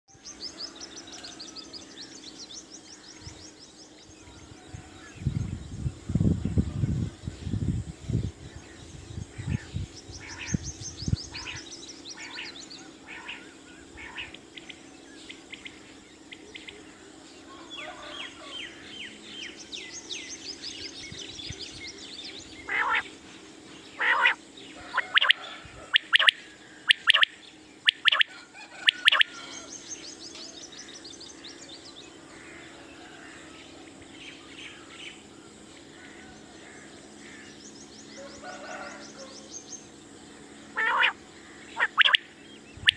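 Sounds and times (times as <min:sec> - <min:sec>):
high descending twittering trills: 0:00.1 - 0:42.9
quail call notes: 0:22.7 - 0:23.1, 0:24.0 - 0:29.6, 0:40.7 - 0:41.2.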